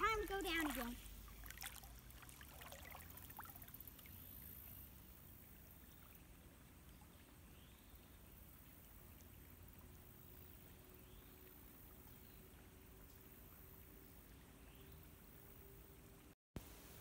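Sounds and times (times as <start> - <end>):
water sloshing and splashing: 0.0 - 4.6.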